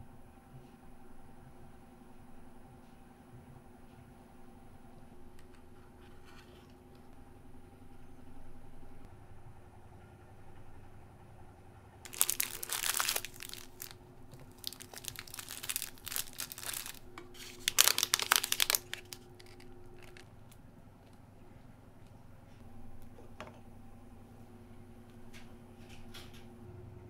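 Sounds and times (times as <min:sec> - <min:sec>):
plastic packets crinkling: 0:12.1 - 0:20.2.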